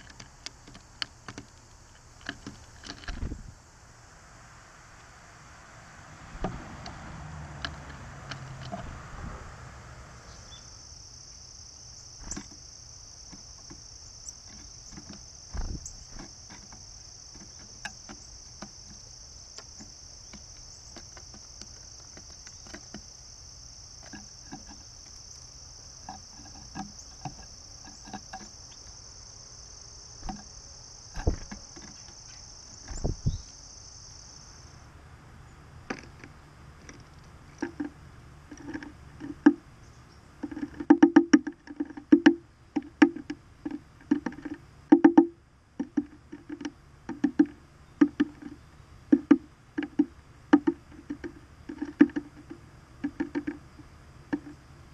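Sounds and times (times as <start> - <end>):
bird tapping on wooden feeder: 0.0 - 3.4, 6.4 - 9.0, 12.2 - 23.3, 24.0 - 28.9, 30.2 - 33.5, 35.9 - 39.6, 40.4 - 54.6.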